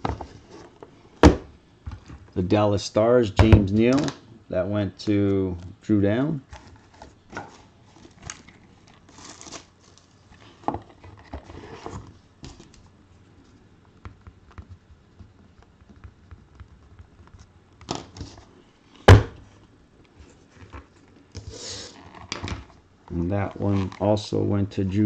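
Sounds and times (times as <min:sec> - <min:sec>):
cardboard packaging rustling: 0:06.5 - 0:12.8.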